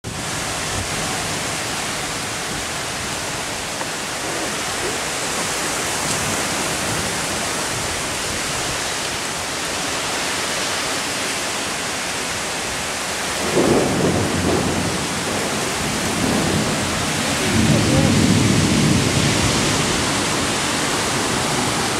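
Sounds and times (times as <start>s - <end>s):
heavy rain pouring: 0.0s - 21.9s
low thunder rumble: 13.4s - 21.9s.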